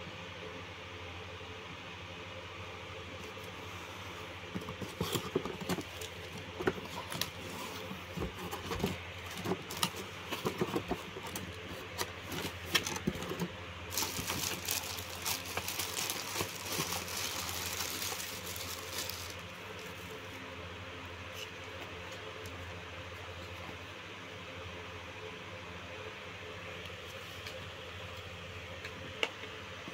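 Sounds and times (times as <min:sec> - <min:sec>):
plastic bags crinkling: 0:08.8 - 0:20.2.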